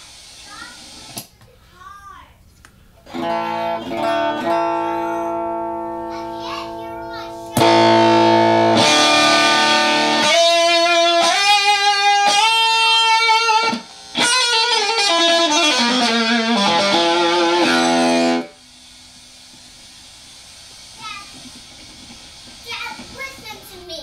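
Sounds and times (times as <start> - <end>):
faint amp hum: 0.0 - 24.0
fuzzy electric guitar notes: 3.1 - 18.6.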